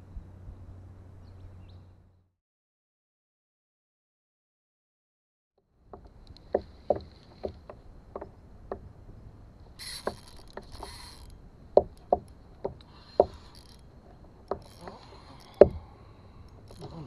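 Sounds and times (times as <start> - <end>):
water slapping kayak hull: 5.9 - 17.0.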